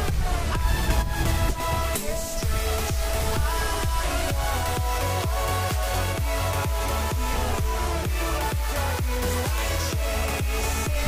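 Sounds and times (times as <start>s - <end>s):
sustained synth tones: 0.0s - 10.3s
kick drum beat: 2.4s - 11.0s.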